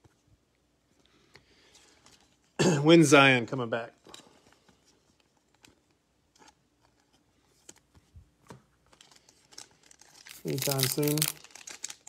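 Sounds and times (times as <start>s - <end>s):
trading cards clicking and rustling: 8.9s - 12.0s.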